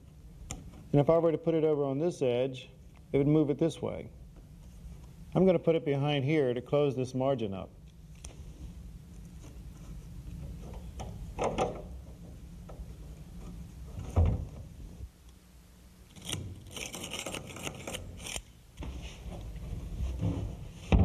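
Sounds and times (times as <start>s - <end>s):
screwdriver grinding screw: 16.1s - 18.5s.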